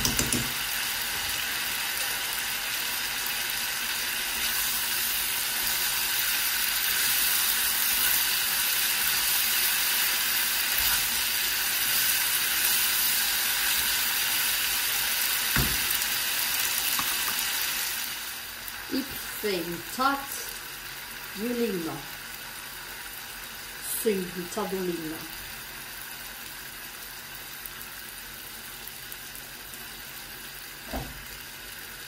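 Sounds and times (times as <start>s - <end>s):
knock: 0.0s - 0.6s, 15.6s - 15.9s
food sizzling in frying pan: 0.0s - 32.0s.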